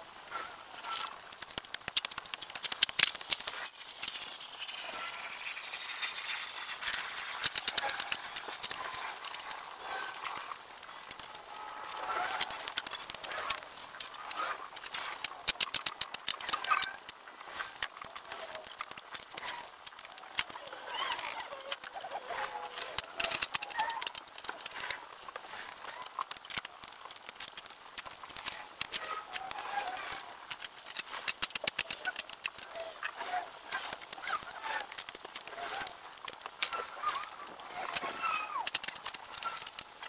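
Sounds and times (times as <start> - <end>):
logs clicking and clacking: 0.8 - 40.0
squeaky chirps: 2.0 - 13.6, 19.4 - 24.7.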